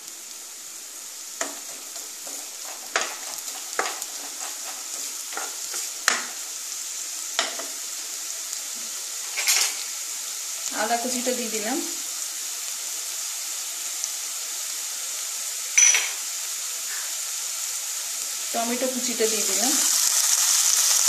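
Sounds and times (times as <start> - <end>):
onion sizzling in oil: 0.0 - 21.0
spatula tapping and scraping pan: 1.4 - 6.5, 7.4 - 7.8.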